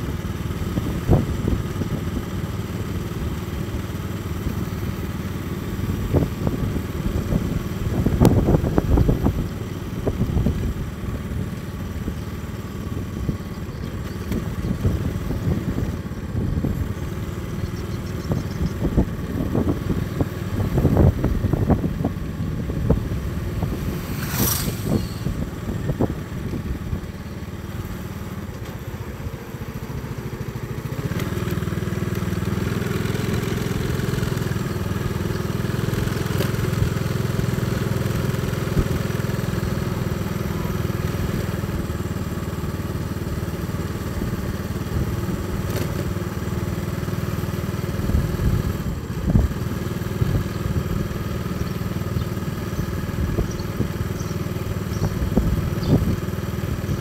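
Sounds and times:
motorcycle engine running: 0:00.0 - 0:57.0
knocks and buffeting: 0:04.5 - 0:35.4.

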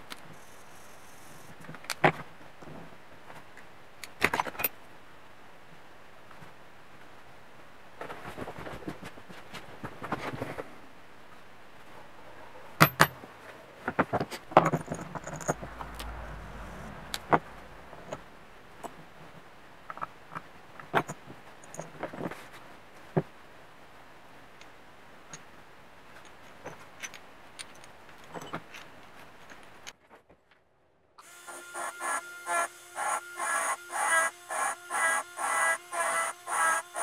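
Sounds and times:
metal tools clicking and clinking: 0:12.8 - 0:13.2.

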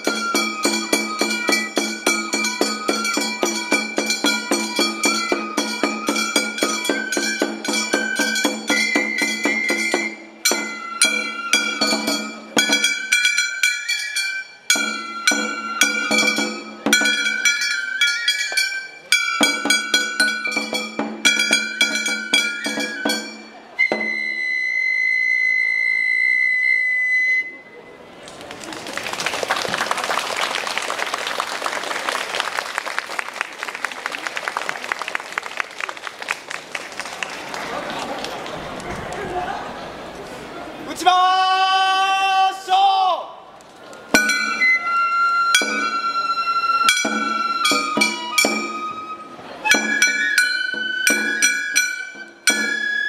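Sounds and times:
held high flute note: 0:00.0 - 0:13.1, 0:13.7 - 0:19.6, 0:21.4 - 0:27.8, 0:44.2 - 0:53.0
metal percussion strikes: 0:00.0 - 0:24.1, 0:44.1 - 0:44.9, 0:45.6 - 0:46.2, 0:46.8 - 0:48.9, 0:49.7 - 0:52.9
transverse flutes playing melody: 0:00.0 - 0:27.9, 0:44.1 - 0:53.0.

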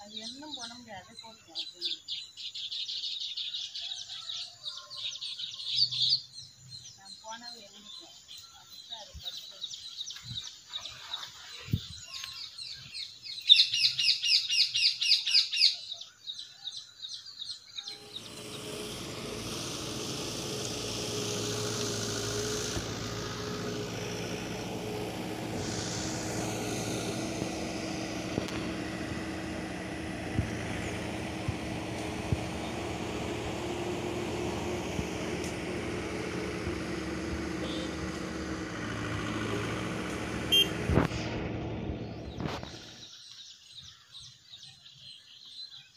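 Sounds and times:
bird chirping: 0:00.0 - 0:18.7, 0:42.0 - 0:45.9
birds twittering: 0:00.0 - 0:45.9
steady noise with low hum: 0:17.9 - 0:43.0.

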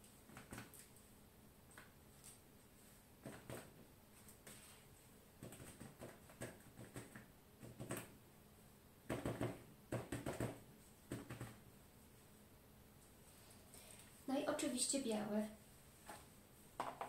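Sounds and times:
foil ball tapping on paper: 0:05.4 - 0:08.1, 0:09.1 - 0:11.6.

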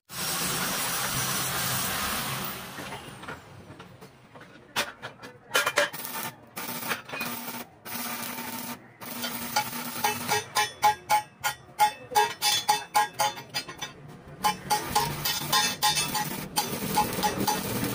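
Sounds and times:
arc welding crackling: 0:00.1 - 0:02.8, 0:05.5 - 0:17.9
hammer striking metal: 0:09.0 - 0:17.9.

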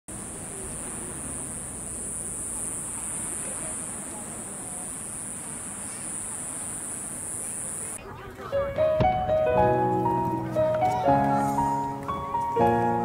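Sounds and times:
faint distant voices: 0:00.1 - 0:13.0
high-pitched insect drone: 0:00.2 - 0:08.0.

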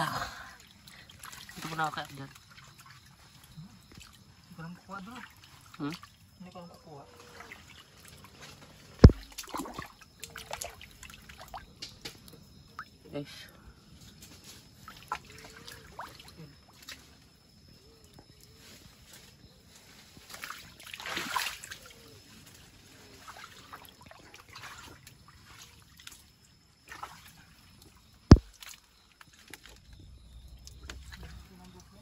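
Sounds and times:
river water sloshing and trickling: 0:00.3 - 0:13.0, 0:14.1 - 0:32.0
sharp knock: 0:09.0 - 0:09.3, 0:28.3 - 0:28.5
water splash: 0:09.0 - 0:10.8.

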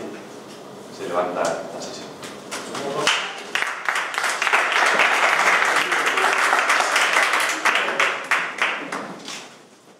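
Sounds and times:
crowd applauding: 0:03.1 - 0:09.3.

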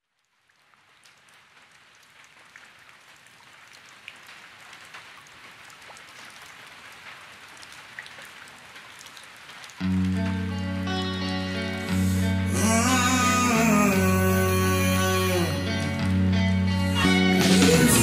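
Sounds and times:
raindrops ticking: 0:00.0 - 0:16.4
rain hissing: 0:08.6 - 0:18.0.

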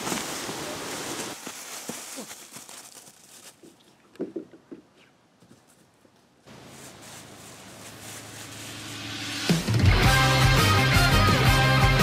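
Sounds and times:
rustling of dry leaves: 0:00.0 - 0:04.0, 0:05.6 - 0:09.8.

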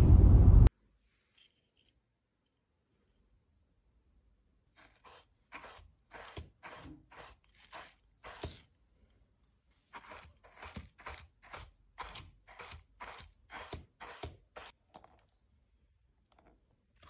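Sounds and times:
shoe brush scratching leather: 0:04.8 - 0:08.7, 0:09.9 - 0:14.8.

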